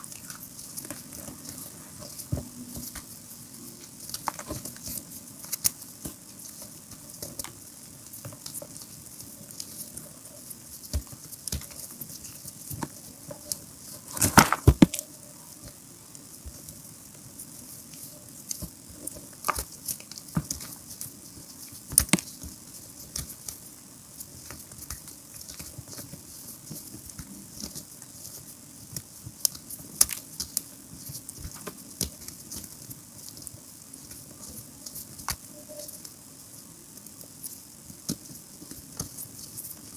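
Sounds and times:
hands crushing chalk: 0:10.8 - 0:15.0.

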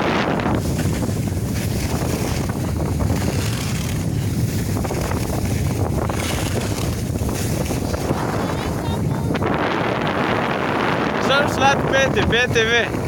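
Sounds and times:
wind rumbling on microphone: 0:00.0 - 0:13.0
skis hissing on snow: 0:00.4 - 0:08.7.

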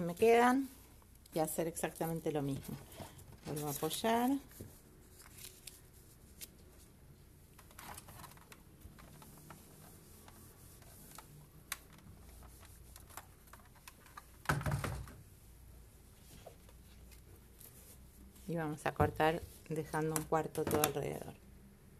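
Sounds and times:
paper rustling: 0:01.9 - 0:06.9, 0:07.6 - 0:14.4.

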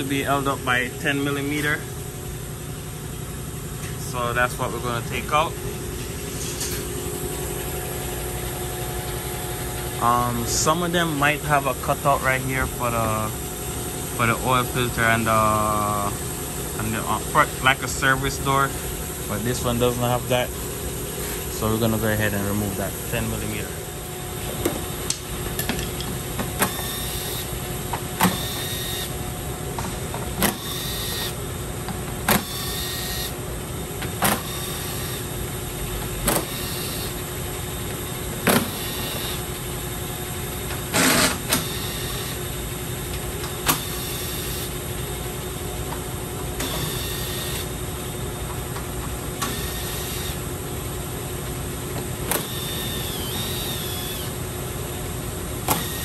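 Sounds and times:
steady hum: 0:00.0 - 0:56.0
cordless power tool whirring: 0:52.3 - 0:54.3, 0:55.7 - 0:56.0.

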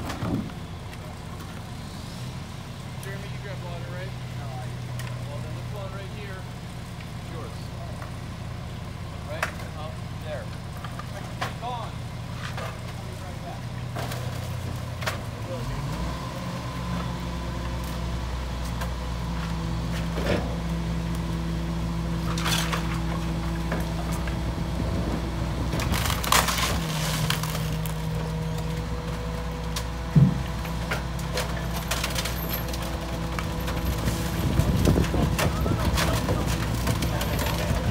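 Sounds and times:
garbage truck running: 0:00.0 - 0:37.9
wooden debris crashing into hopper: 0:25.7 - 0:28.2, 0:31.2 - 0:37.9.

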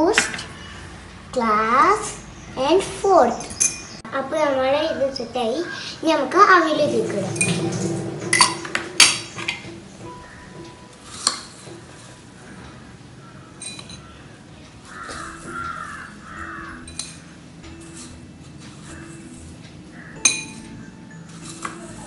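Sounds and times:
spoon clinking on glass: 0:13.6 - 0:14.0, 0:20.2 - 0:21.9.

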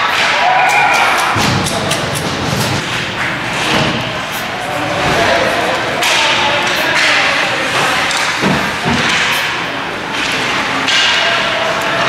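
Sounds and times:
hockey sticks clattering: 0:00.0 - 0:12.0
thuds: 0:01.3 - 0:04.4.

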